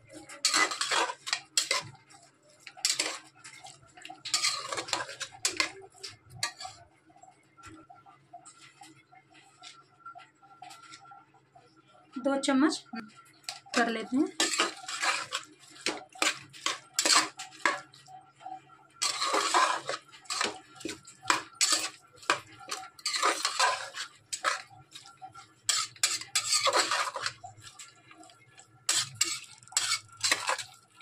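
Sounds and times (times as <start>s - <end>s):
metal spoon scraping a pot: 0.1s - 6.8s, 13.5s - 18.2s, 19.0s - 30.9s.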